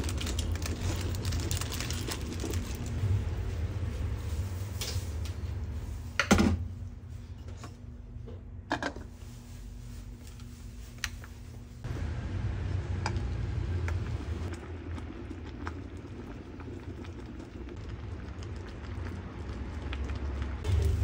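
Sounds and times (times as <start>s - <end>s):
water simmering in pot: 11.9s - 21.0s.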